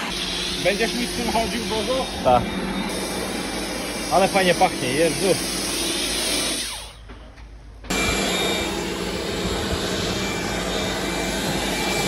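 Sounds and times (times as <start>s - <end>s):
pressure washer spraying foam: 0.0s - 6.7s.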